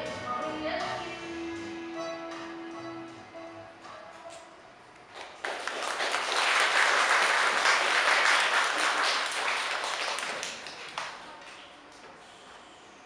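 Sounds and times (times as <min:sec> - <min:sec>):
audience applauding: 0:05.1 - 0:11.6.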